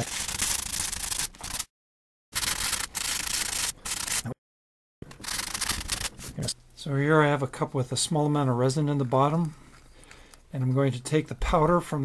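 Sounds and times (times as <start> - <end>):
hand sanding with sanding block: 2.4 - 4.4.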